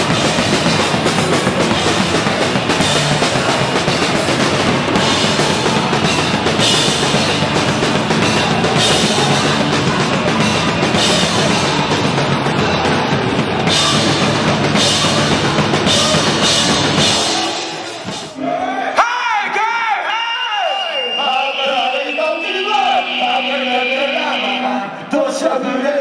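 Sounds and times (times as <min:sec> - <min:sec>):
pounding drum kit: 0:00.0 - 0:18.4
electric guitars: 0:00.0 - 0:18.5.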